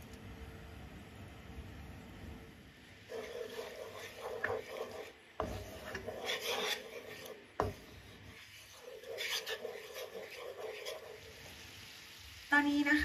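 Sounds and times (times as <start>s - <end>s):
spatula scraping a saucepan: 3.1s - 11.7s.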